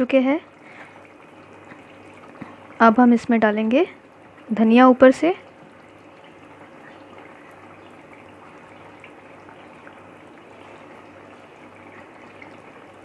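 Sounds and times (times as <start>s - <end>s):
faint steady hum: 0.0s - 13.0s
gravy simmering in a pan: 3.8s - 13.0s.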